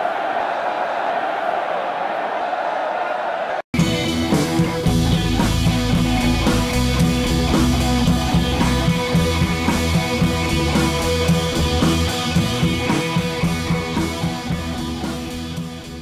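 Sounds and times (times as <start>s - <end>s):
rock music with drums and guitar: 3.8s - 16.0s.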